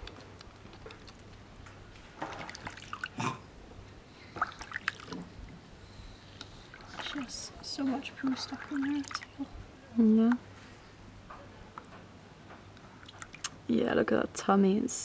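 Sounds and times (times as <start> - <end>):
water dripping and splashing: 0.0 - 3.2, 4.3 - 5.6, 6.6 - 9.5, 13.0 - 13.6.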